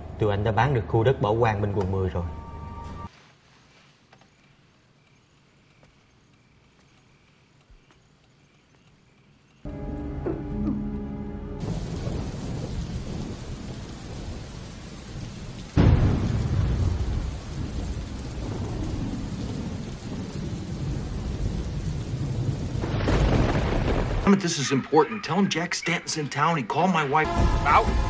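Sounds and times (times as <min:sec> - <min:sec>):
loud thunderclap rolling: 0:09.7 - 0:24.3
thunder rumbling: 0:09.7 - 0:24.4, 0:27.2 - 0:28.0
heavy rain: 0:09.7 - 0:28.0.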